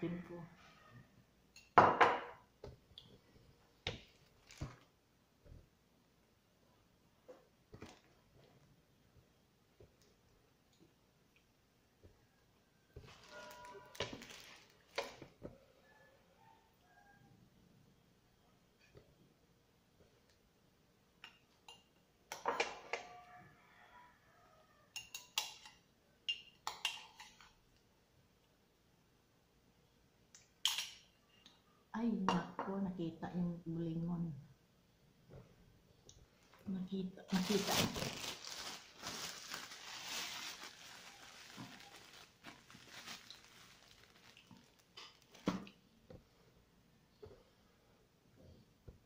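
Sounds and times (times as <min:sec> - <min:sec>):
plastic bag crinkling: 0:04.1 - 0:04.9, 0:13.1 - 0:15.2, 0:37.2 - 0:45.4.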